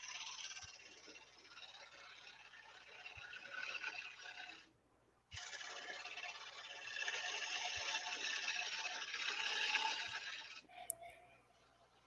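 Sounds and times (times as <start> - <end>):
lathe gouge shaving wood: 0.0 - 4.7.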